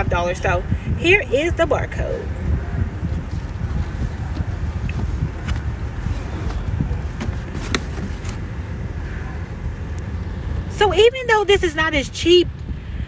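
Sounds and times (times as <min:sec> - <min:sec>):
shopping cart wheels rumbling: 0:03.0 - 0:08.4
cart clicks and rattles: 0:04.2 - 0:08.4.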